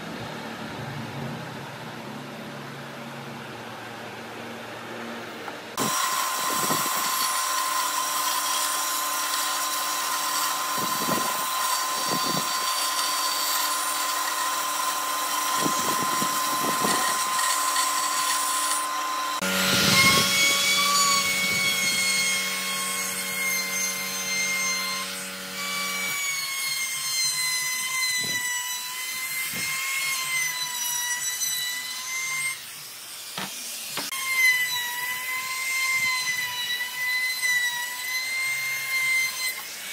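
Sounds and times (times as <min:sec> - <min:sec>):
electric router whining: 0:05.0 - 0:27.0
band saw cutting wood: 0:05.7 - 0:39.9.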